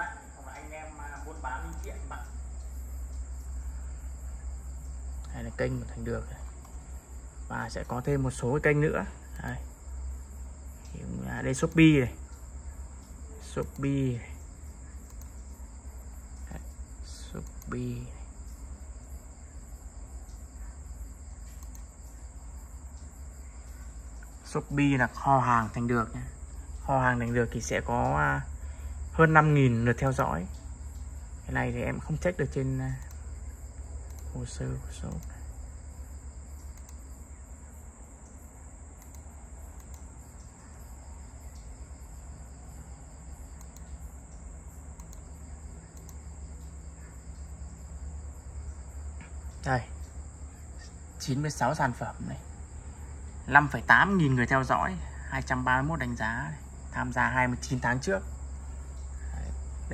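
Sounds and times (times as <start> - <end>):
crickets chirping: 0.0 - 59.9
low hum: 0.0 - 59.9
faint clicks: 0.5 - 8.2, 9.2 - 19.0, 20.0 - 37.3, 38.2 - 51.3.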